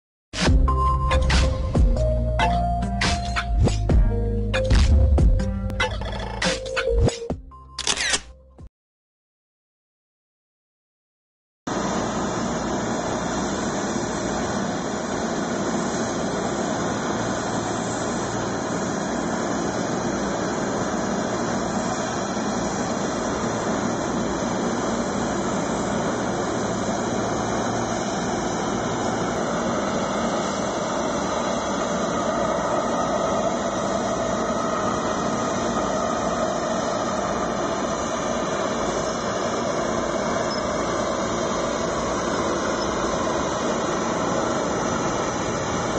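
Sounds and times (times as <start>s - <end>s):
jet engines of landing airliner: 11.7s - 45.9s.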